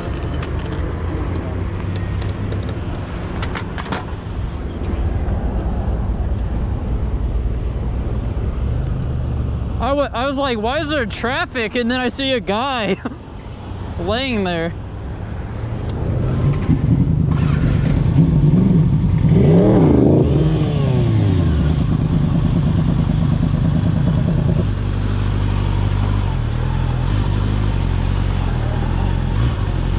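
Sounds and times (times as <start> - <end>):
motorcycle engine revving: 15.9 - 29.9.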